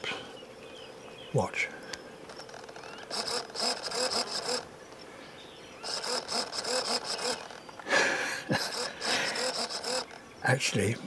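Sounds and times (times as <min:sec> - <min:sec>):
small electric motor whirring: 0:02.3 - 0:05.0, 0:05.8 - 0:07.8, 0:08.5 - 0:10.2.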